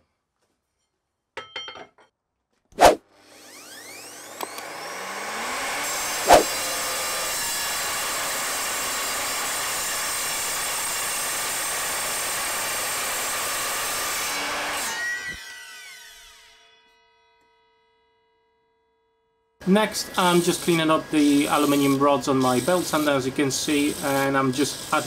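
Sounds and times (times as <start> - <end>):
mitre saw cutting metal: 20.0 - 25.0.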